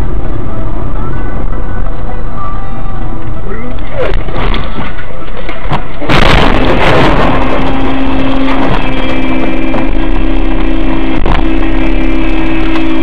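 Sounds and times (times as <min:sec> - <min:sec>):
dense noise with steady tones: 0:00.0 - 0:13.0
vehicle crash impact: 0:04.2 - 0:13.0.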